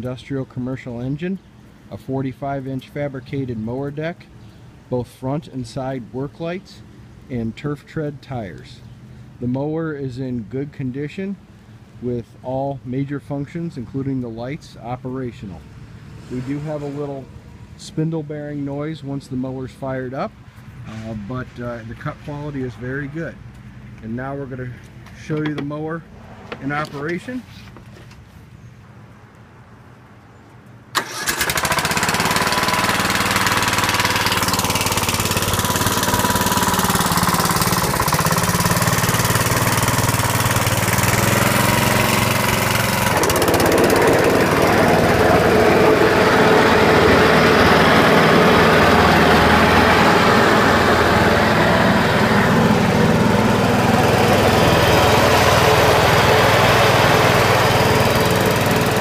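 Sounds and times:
mower engine running: 0:31.0 - 0:59.0.

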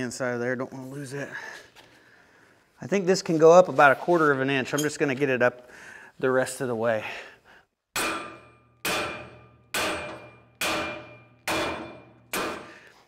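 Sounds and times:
sledgehammer striking steel: 0:08.0 - 0:13.0.

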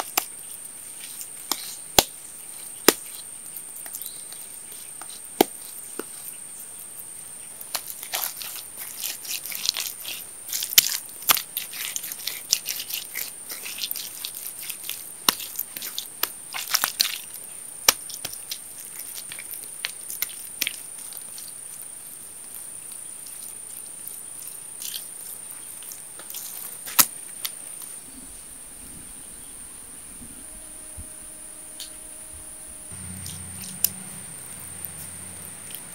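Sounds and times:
hands slapping wet clay: 0:07.7 - 0:20.8
high-pitched insect drone: 0:29.9 - 0:35.9.

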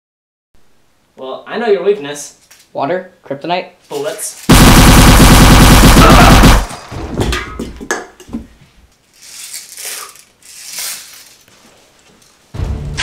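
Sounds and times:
gunfire burst: 0:04.5 - 0:07.6.

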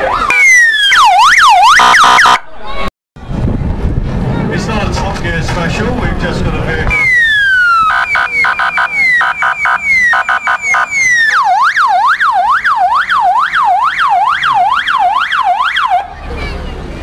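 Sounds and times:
police siren yelping: 0:00.0 - 0:02.5, 0:06.9 - 0:16.1.

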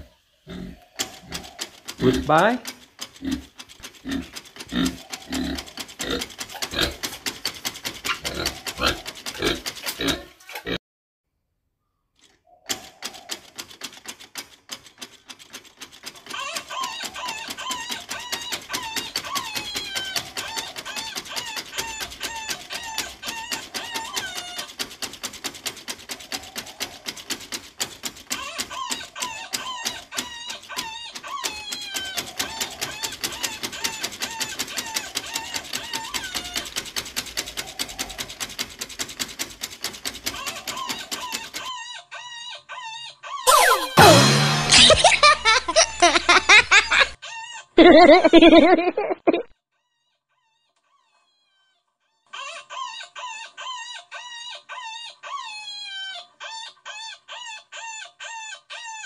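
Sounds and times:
pig grunting and oinking: 0:00.0 - 0:02.5, 0:03.2 - 0:07.1, 0:08.1 - 0:10.8
birds chirping: 0:00.0 - 0:02.6
fast steady clicking: 0:00.9 - 0:10.4, 0:12.7 - 0:41.7.

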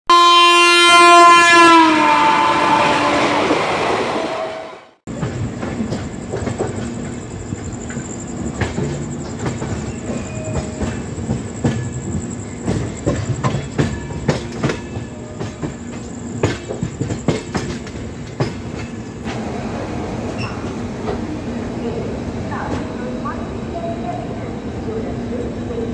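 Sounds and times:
locomotive horn: 0:00.1 - 0:05.0
train running rumble: 0:02.0 - 0:25.9
wheels clicking over rail joints: 0:05.1 - 0:19.5.

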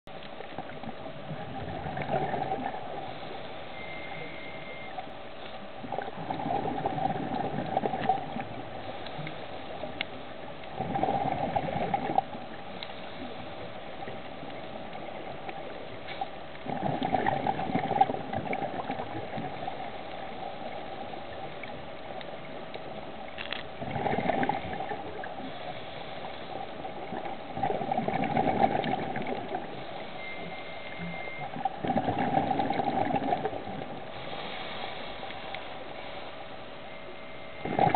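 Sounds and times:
scuba exhale bubbles: 0:00.6 - 0:04.9, 0:05.8 - 0:09.3, 0:10.7 - 0:12.5, 0:16.6 - 0:20.0, 0:23.8 - 0:35.0, 0:37.6 - 0:37.9
steady hiss: 0:02.8 - 0:05.9, 0:08.4 - 0:10.7, 0:12.5 - 0:16.6, 0:25.0 - 0:27.2, 0:33.9 - 0:37.6.

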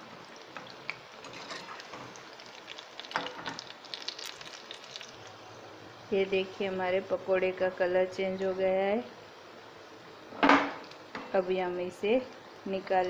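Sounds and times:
batter sizzling in hot oil: 0:00.0 - 0:07.0
oil popping: 0:00.4 - 0:05.4.

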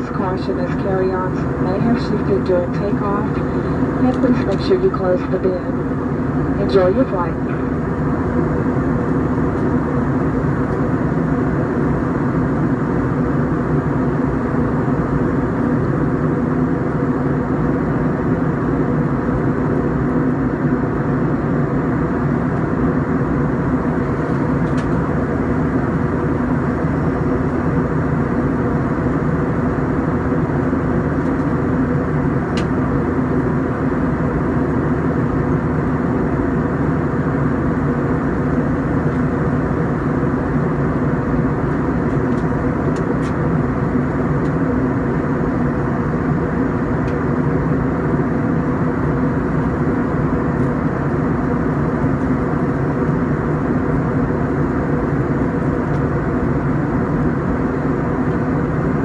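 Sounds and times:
jet engines droning in cabin: 0:00.0 - 0:59.0
low hum: 0:00.0 - 0:59.0.

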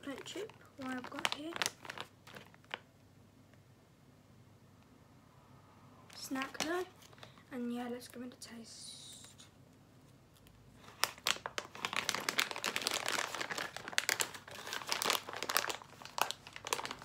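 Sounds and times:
plastic pouch crinkling: 0:00.0 - 0:02.8, 0:06.1 - 0:07.3, 0:10.4 - 0:17.0.

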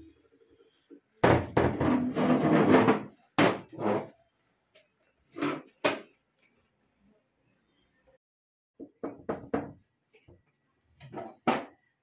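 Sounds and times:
loud banging on wood: 0:01.2 - 0:03.7.

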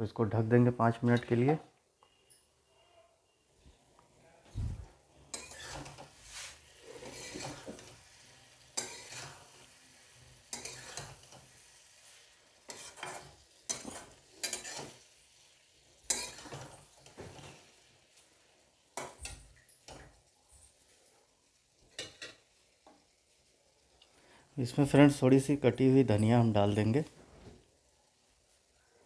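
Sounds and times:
food sizzling: 0:04.5 - 0:29.0
metal spatula scraping a pan: 0:05.1 - 0:18.0, 0:21.9 - 0:22.5.

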